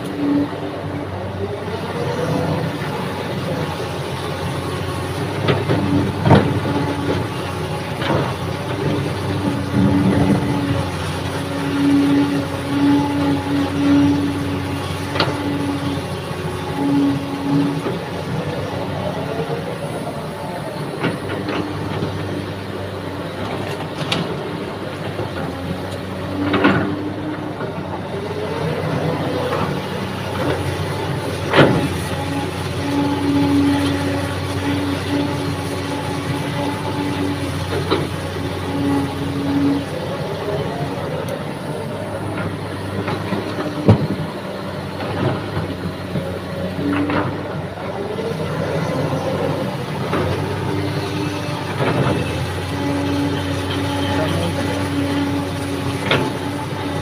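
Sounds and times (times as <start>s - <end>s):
diesel engine under load: 0.0s - 57.0s.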